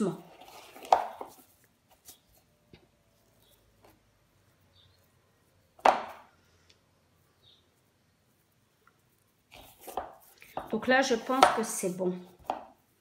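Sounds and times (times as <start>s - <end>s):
hands squeezing moist filling: 6.3s - 10.6s.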